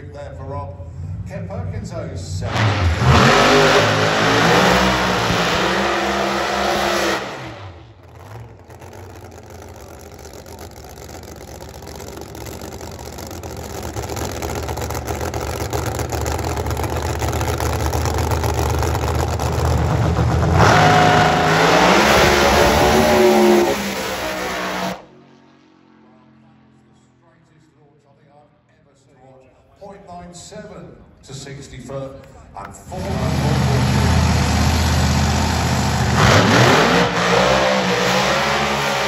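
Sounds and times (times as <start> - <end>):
racing car engine revving: 2.3 - 26.0, 32.8 - 39.0
low engine rumble: 7.7 - 20.6.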